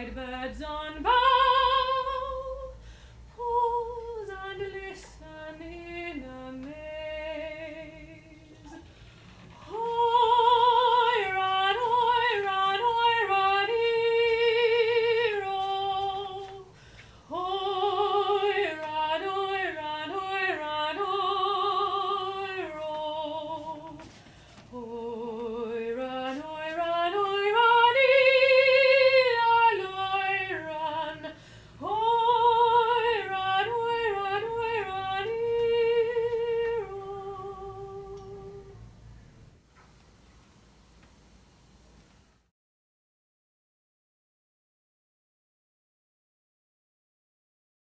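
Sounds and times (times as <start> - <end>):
woman singing unaccompanied: 0.0 - 8.9, 9.5 - 38.8.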